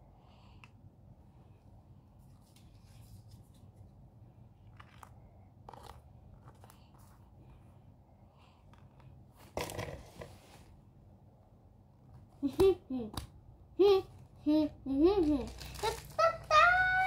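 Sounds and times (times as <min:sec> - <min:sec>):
paper cards rustling: 0:02.2 - 0:03.9, 0:15.4 - 0:17.0
plastic packaging crinkling: 0:15.2 - 0:16.9.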